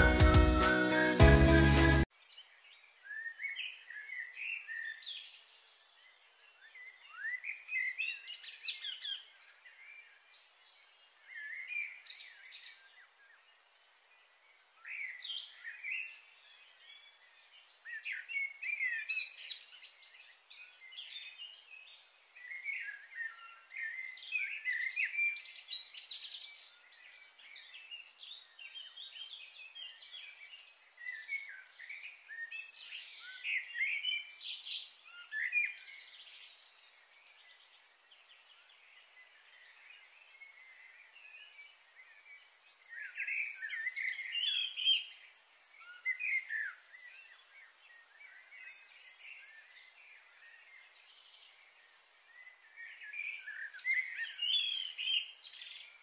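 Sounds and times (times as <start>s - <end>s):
high-pitched hiss: 0.0s - 2.1s, 44.2s - 56.0s
wild birds chirping: 0.0s - 56.0s.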